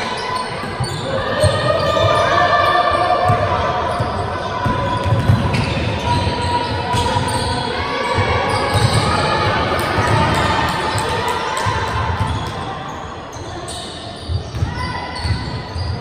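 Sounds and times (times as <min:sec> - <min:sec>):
basketballs bouncing on hardwood: 0:04.6 - 0:05.9.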